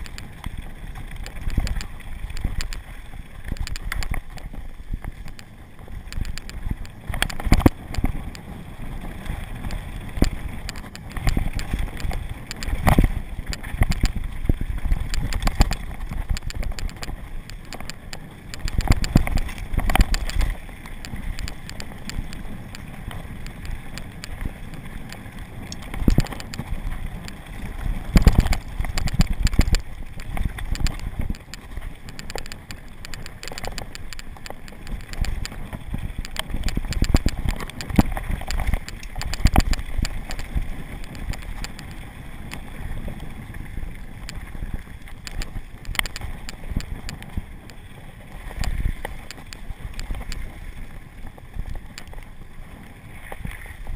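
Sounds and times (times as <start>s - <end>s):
bike rattling over bumps: 0.0s - 53.9s.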